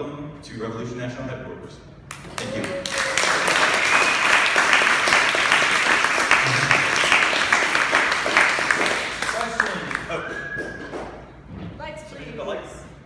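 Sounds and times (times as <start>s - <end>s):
audience applauding: 2.1s - 11.1s.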